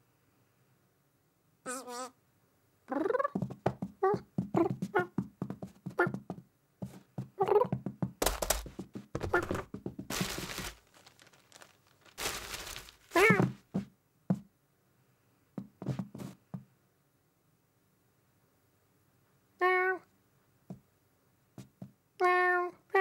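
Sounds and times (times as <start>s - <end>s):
cartoon cat chirping cry: 1.7s - 2.2s, 19.6s - 20.1s
cartoon rustling and scuffling: 2.9s - 14.4s, 15.6s - 16.5s.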